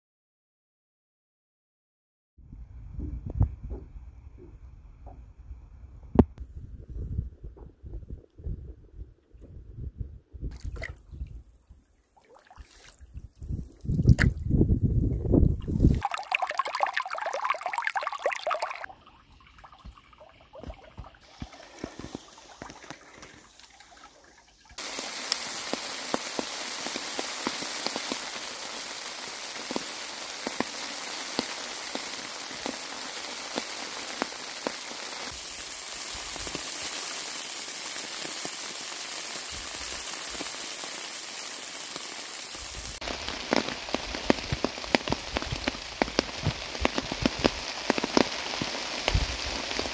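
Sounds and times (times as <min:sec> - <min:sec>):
stream trickling over rocks: 0:15.6 - 0:49.9
rain on a nylon tent: 0:16.0 - 0:18.9, 0:20.6 - 0:24.1, 0:24.7 - 0:49.9
steady rain: 0:21.0 - 0:23.8, 0:24.8 - 0:49.9.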